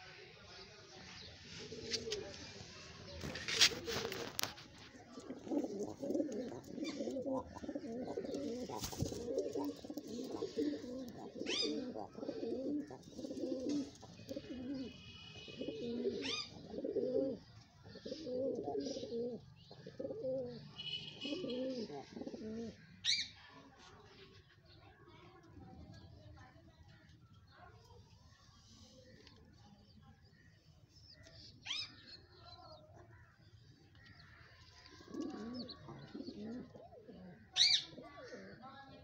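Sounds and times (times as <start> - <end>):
pigeons cooing: 3.2 - 20.6, 21.2 - 22.8, 34.8 - 38.6.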